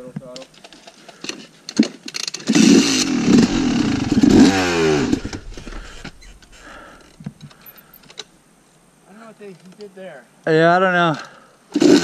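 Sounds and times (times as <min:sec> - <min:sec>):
dirt bike engine revving: 0:02.5 - 0:07.0.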